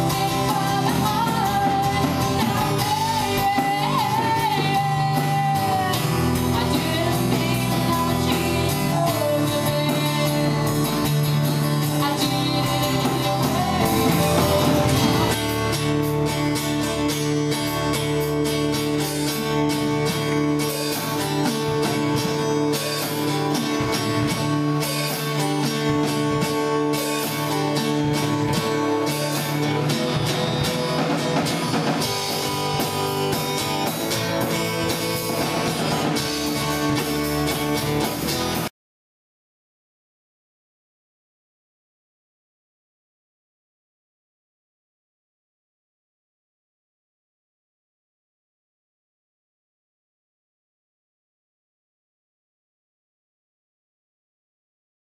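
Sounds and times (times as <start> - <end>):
woman singing: 0.0 - 15.4
drum kit: 0.0 - 38.7
strummed acoustic guitar: 0.0 - 38.7.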